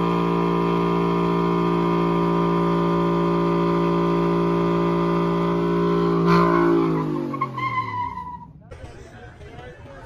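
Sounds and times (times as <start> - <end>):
car engine at high revs: 0.0 - 8.5.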